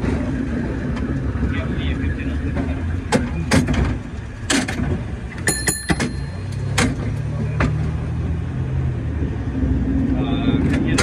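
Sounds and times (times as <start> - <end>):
road traffic hum: 0.0 - 11.0
sharp metallic clanks: 4.5 - 7.2.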